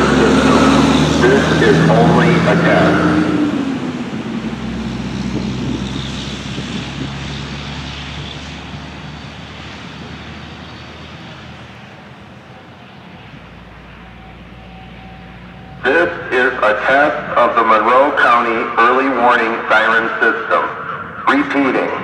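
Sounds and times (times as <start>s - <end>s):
siren recorded voice message: 0.0s - 3.4s, 12.6s - 22.0s
rushing outdoor noise: 0.0s - 22.0s.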